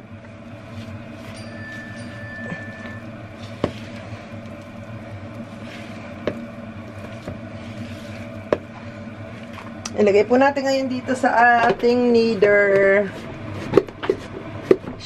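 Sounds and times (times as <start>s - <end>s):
low hum: 0.0s - 15.0s
spatula stirring dough: 0.4s - 9.8s.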